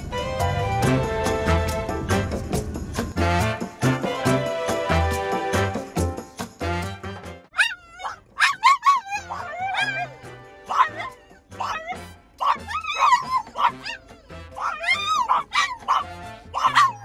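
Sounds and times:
music: 0.0s - 17.0s
dogs howling and yowling: 7.5s - 17.0s.

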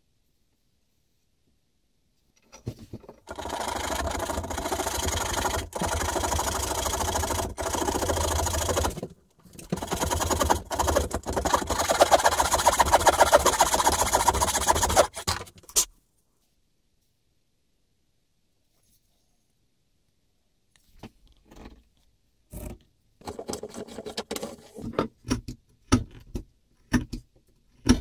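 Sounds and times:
hand saw rasping through wood: 3.2s - 9.0s, 9.7s - 15.5s.

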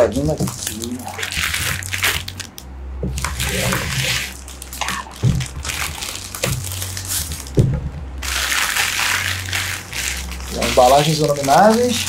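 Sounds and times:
plastic wrap tearing and crinkling: 0.0s - 7.6s, 8.2s - 12.0s
dull knocks: 7.6s - 8.1s.

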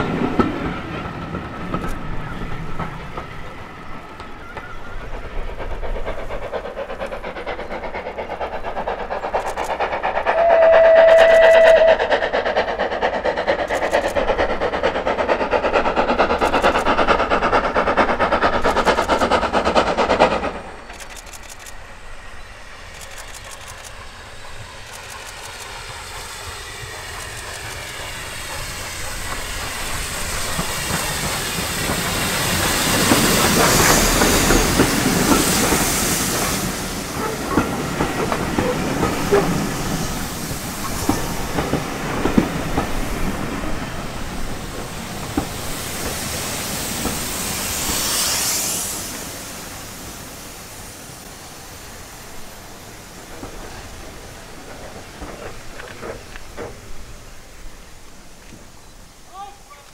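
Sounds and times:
approaching steam locomotive: 0.0s - 59.9s
loud rushing train noise: 0.0s - 59.9s
train coaches rumbling on rails: 0.0s - 59.9s
steam whistle blast: 10.3s - 12.1s.

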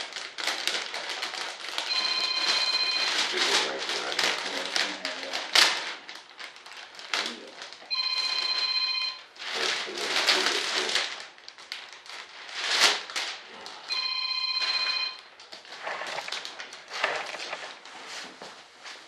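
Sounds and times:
plastic film crinkling: 0.0s - 19.0s
electronic ring tone: 1.9s - 3.2s, 7.9s - 9.2s, 13.9s - 15.2s.

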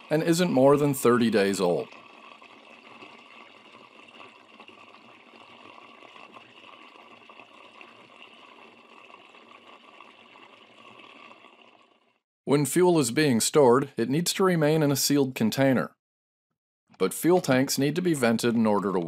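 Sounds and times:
fuel pouring into tank: 0.0s - 12.2s.

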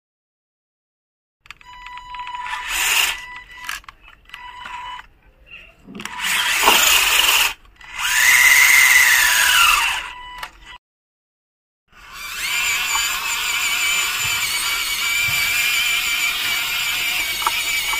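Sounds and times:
toy car electric motor whining: 1.7s - 10.8s, 12.0s - 17.9s.

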